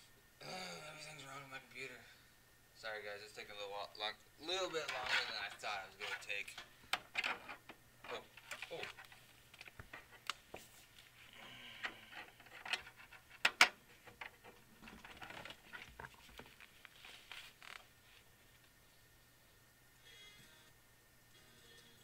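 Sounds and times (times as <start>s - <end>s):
clicks taps and rustling: 4.8s - 11.1s.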